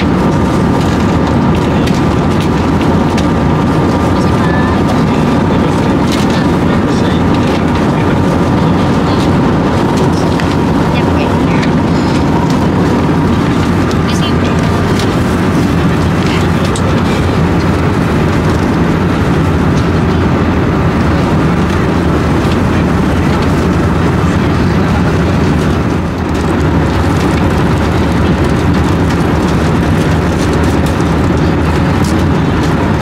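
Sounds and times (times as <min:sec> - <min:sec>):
airplane cabin noise: 0:00.0 - 0:33.0.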